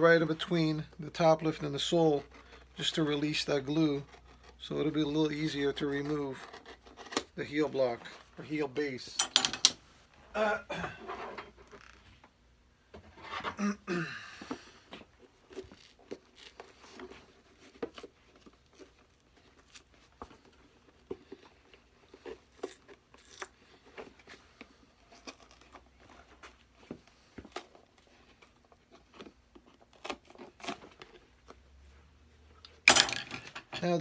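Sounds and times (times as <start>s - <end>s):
glue tearing: 22.2s - 23.6s.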